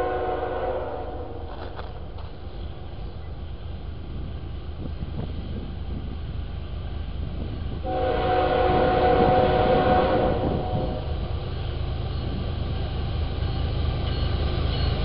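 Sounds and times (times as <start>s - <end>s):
train air horn blast: 0.0s - 1.5s, 7.8s - 11.2s
train locomotive rumbling: 0.0s - 15.0s.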